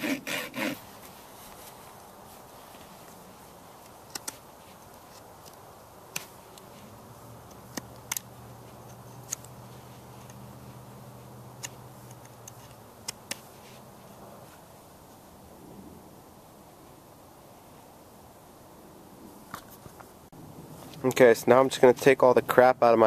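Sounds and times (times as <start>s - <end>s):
knife whittling wood clicks: 4.1s - 4.4s.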